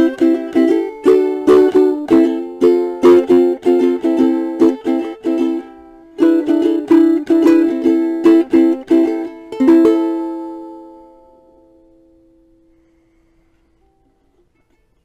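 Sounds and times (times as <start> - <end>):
ukulele strumming chords: 0.0 - 13.0.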